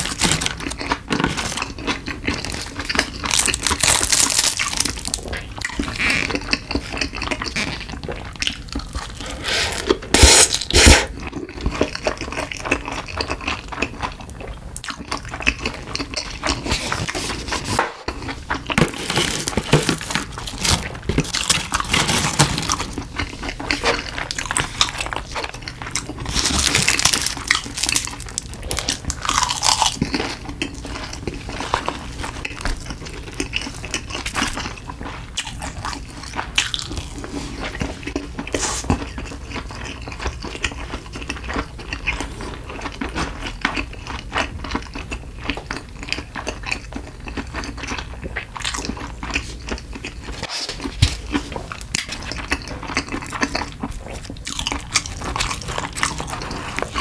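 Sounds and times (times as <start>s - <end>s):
wet chewing and slurping: 0.0s - 57.0s.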